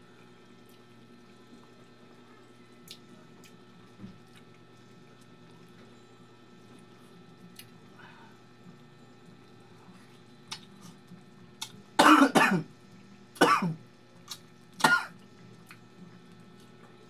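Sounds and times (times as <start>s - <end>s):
man coughing: 12.0s - 12.7s.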